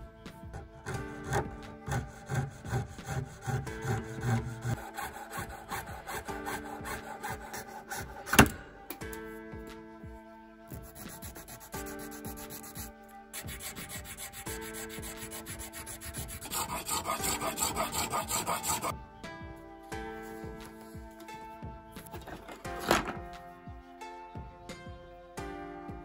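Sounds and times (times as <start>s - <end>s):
abrasive tool rubbing plastic: 0.8s - 8.5s, 10.9s - 18.9s.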